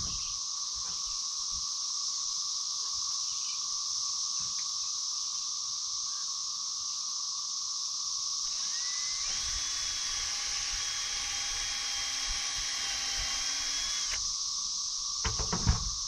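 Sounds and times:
power drill driving screw into wood: 8.5s - 14.3s
sharp knocks: 15.2s - 16.0s.

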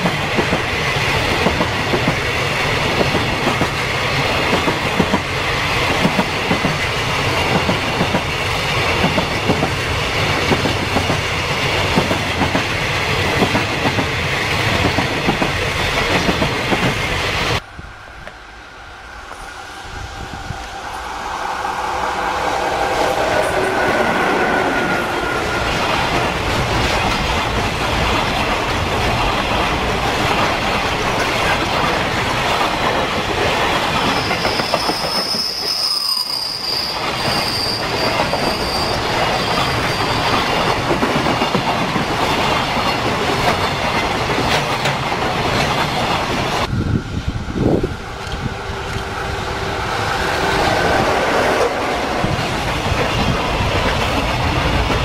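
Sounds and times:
freight train wheels clattering: 0.0s - 17.6s, 22.7s - 35.9s, 37.0s - 46.7s
high thin wheel squeal: 33.9s - 40.5s.

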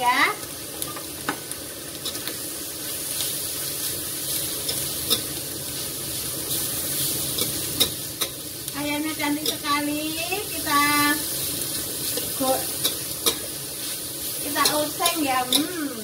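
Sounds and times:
chicken sizzling in a wok: 0.0s - 16.0s
metal spoon scraping a pan: 4.3s - 5.4s, 6.5s - 8.4s, 9.3s - 9.8s, 11.3s - 15.8s
spoon clicking against pan: 7.4s - 8.4s, 12.2s - 13.5s, 14.6s - 15.8s.

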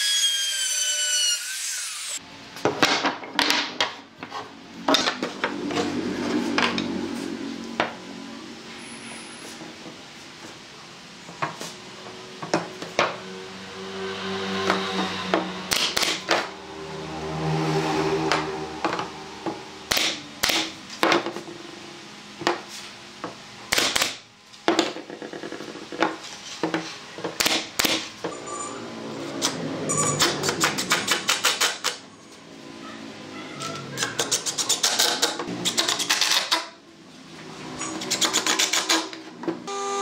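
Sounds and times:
nail gun firing: 19.9s - 20.7s, 23.7s - 24.2s, 30.2s - 32.0s.

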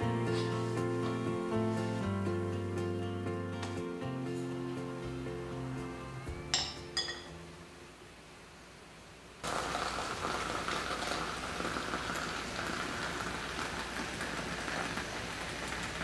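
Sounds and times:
hot water pouring into teapot: 9.4s - 16.0s.

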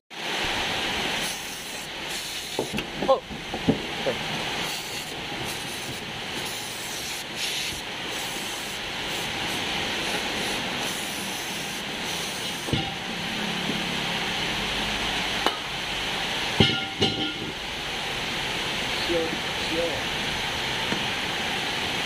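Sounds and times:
aerosol spray hissing: 1.2s - 2.8s, 4.6s - 12.7s.

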